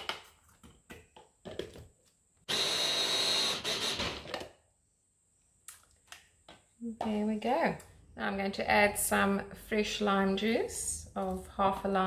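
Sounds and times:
food chopper motor running: 2.5s - 4.3s.

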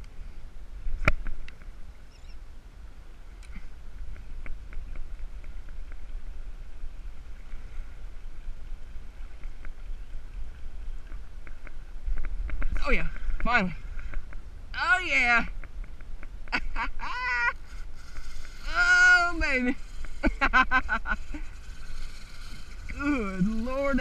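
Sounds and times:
wind rumbling on microphone: 0.0s - 24.0s
small clicks and ticks: 9.2s - 9.9s, 17.6s - 18.8s, 19.6s - 24.0s.

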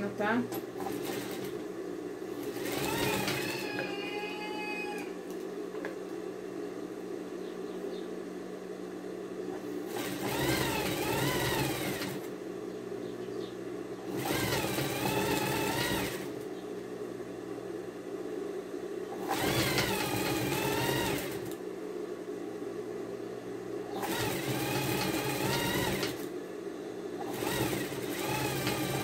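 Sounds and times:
steady machine hum: 0.0s - 29.0s
sewing machine stitching: 0.8s - 1.6s, 2.4s - 3.8s, 9.8s - 12.3s, 14.1s - 16.4s, 19.2s - 21.6s, 24.0s - 26.3s, 27.2s - 29.0s.

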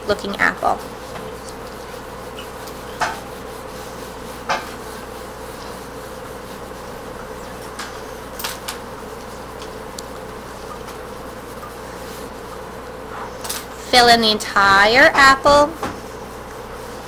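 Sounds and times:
steady electrical buzz: 0.0s - 17.0s
pencil scratching on paper: 0.8s - 8.3s, 9.0s - 13.4s.

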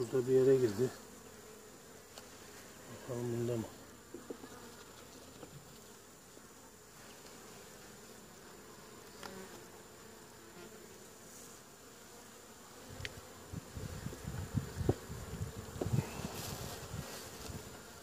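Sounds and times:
honeybees buzzing: 0.0s - 18.0s
wooden knocks of hive frame: 4.0s - 5.7s, 12.9s - 17.9s.

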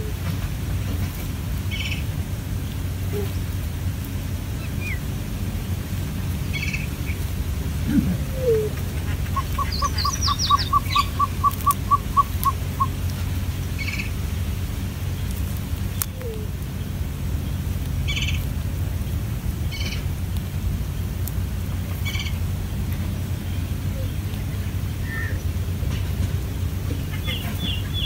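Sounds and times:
steady low rumble: 0.0s - 28.0s
bird piping notes: 8.2s - 13.0s
high bird chirps: 9.2s - 13.0s.

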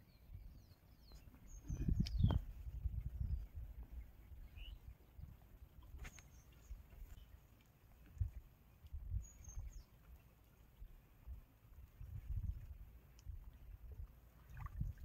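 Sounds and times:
bird chirps: 0.0s - 2.4s, 3.2s - 5.3s, 9.1s - 10.0s.

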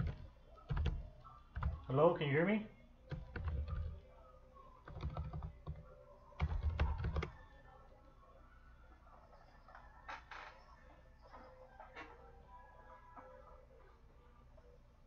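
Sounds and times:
computer keyboard typing: 0.0s - 1.9s, 3.1s - 4.0s, 4.8s - 7.4s.

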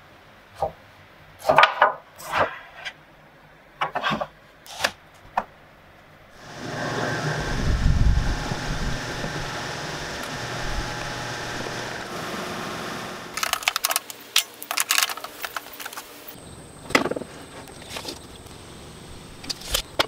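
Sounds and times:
steady background noise: 7.3s - 20.0s
tools clattering and clicking: 13.4s - 16.1s.

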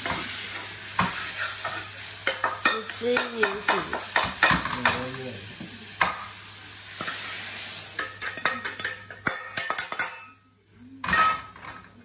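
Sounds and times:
spatula scraping a wok: 0.0s - 4.4s, 6.8s - 10.4s
hot wok steaming hiss: 0.0s - 11.0s
pan sizzling: 0.0s - 12.0s.

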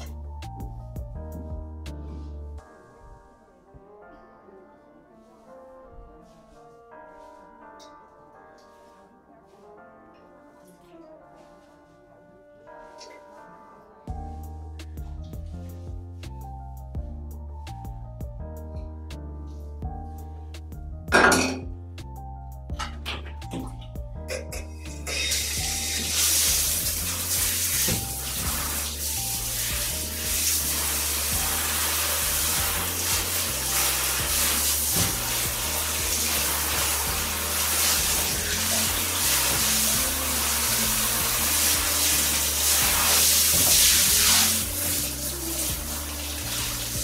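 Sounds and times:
background music with bass: 0.0s - 3.3s, 14.1s - 47.0s
shower spraying into bathtub: 24.9s - 47.0s.

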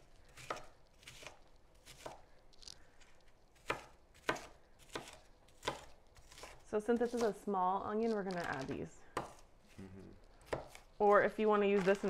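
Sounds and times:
knife chopping on wooden board: 0.3s - 2.2s, 3.6s - 7.4s, 8.3s - 9.5s, 10.4s - 12.0s.

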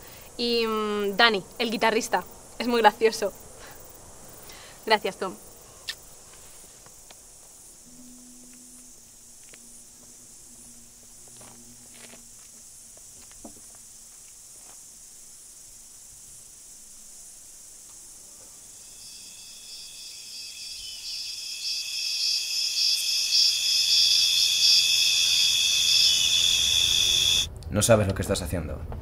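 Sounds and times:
insects chirring: 0.0s - 27.5s.

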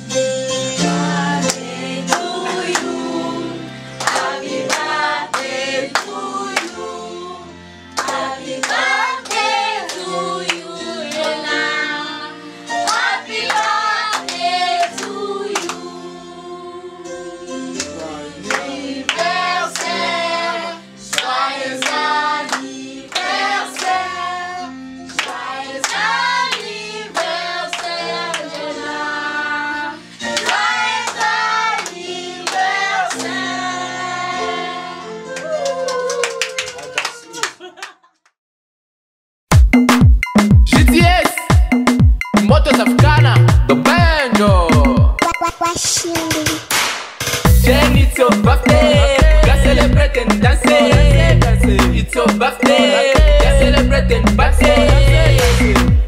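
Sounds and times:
young voices singing: 1.0s - 24.6s, 25.3s - 35.6s, 47.6s - 56.0s
hands clapping: 1.5s - 2.9s, 4.0s - 6.8s, 8.0s - 11.4s, 12.9s - 15.8s, 17.8s - 20.0s, 21.1s - 24.0s, 25.0s - 28.7s, 30.3s - 33.4s, 35.3s - 38.0s, 46.7s - 47.1s.

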